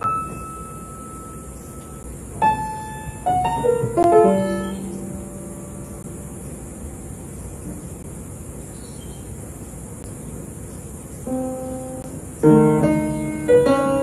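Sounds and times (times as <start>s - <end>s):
random piano notes: 0.0s - 6.9s, 11.2s - 14.0s.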